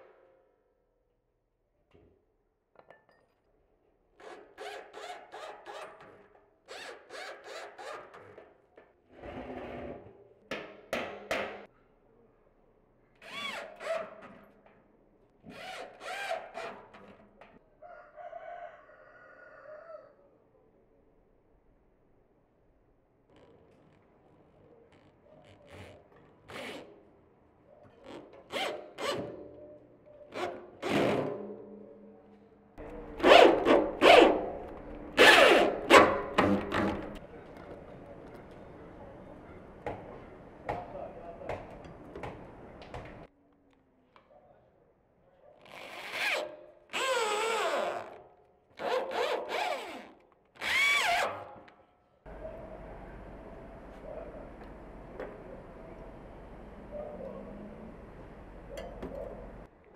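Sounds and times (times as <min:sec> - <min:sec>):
electric drill driving screws: 0:50.6 - 0:51.3.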